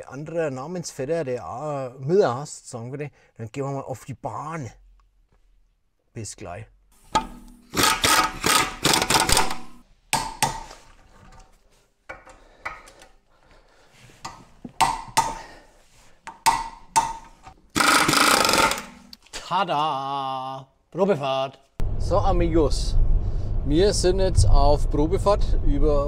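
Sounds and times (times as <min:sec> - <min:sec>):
impact wrench hammering: 0:07.1 - 0:10.8, 0:14.2 - 0:15.5, 0:16.3 - 0:19.1.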